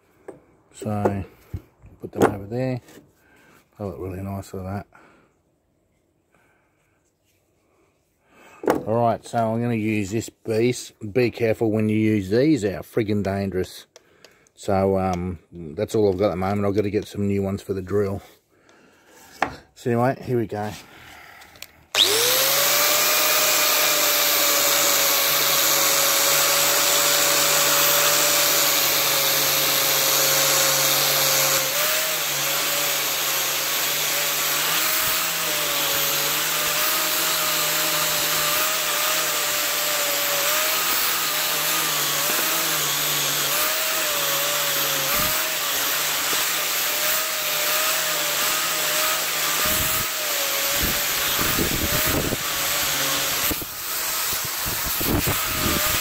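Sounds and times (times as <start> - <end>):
angle grinder whining: 21.6 - 56.0.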